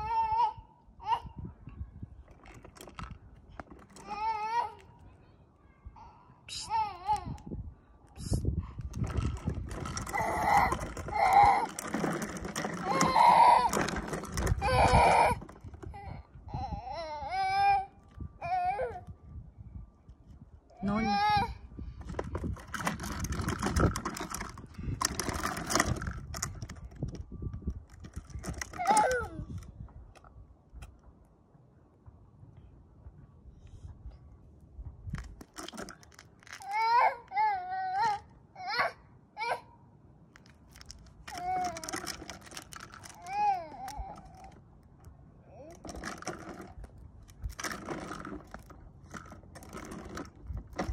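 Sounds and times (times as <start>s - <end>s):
plastic wheels rattling on concrete: 2.2s - 4.8s, 8.8s - 16.2s, 22.0s - 29.6s, 35.1s - 37.1s, 40.4s - 44.6s, 45.6s - 50.9s.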